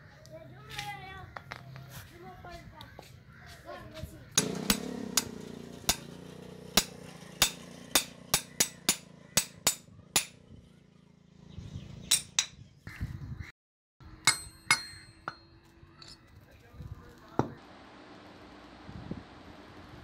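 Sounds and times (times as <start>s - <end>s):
hammer striking steel shaft: 4.4s - 10.4s, 12.1s - 12.6s, 14.2s - 15.7s.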